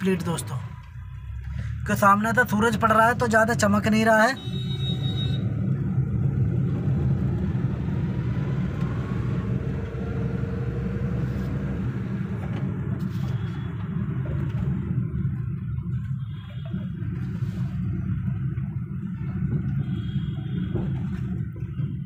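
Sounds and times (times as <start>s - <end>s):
car driving rumble from inside: 4.7s - 22.0s.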